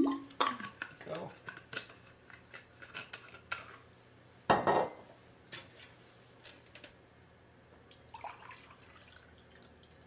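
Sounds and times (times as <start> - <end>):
water pouring into a glass: 7.9 - 10.0.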